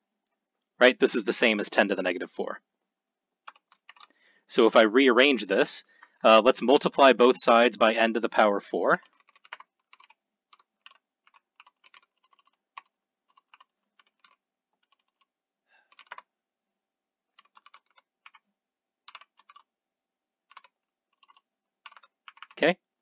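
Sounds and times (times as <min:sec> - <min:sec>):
keyboard typing: 0:03.4 - 0:04.2, 0:09.0 - 0:15.3, 0:15.9 - 0:16.3, 0:17.3 - 0:18.4, 0:19.0 - 0:19.7, 0:20.4 - 0:22.7.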